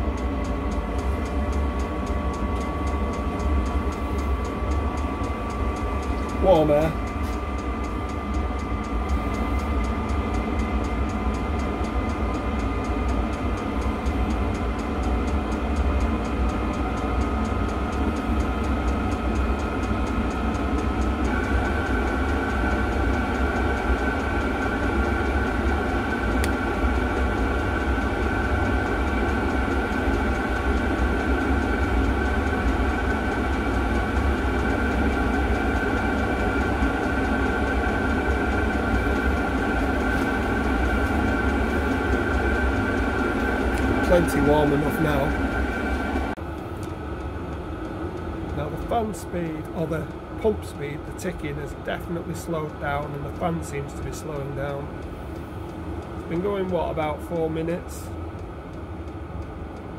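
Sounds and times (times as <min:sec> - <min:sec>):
fuel pump ticking: 0:00.0 - 0:28.1
blower fan whine: 0:00.0 - 0:59.9
low combustion rumble: 0:00.0 - 0:59.9.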